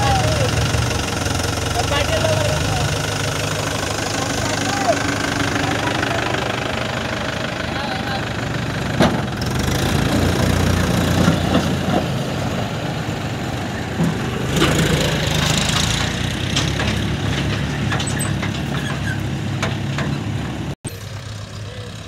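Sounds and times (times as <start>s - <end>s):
tractor diesel engine running: 0.0s - 22.0s
knocks and clanks: 8.8s - 12.2s, 13.9s - 20.8s.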